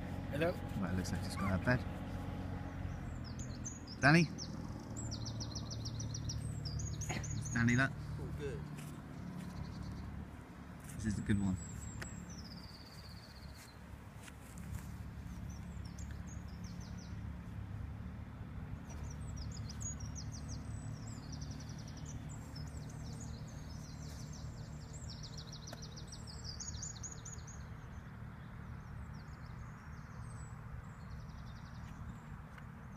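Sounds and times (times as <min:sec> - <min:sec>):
songbirds chirping and trilling: 0:00.0 - 0:32.9.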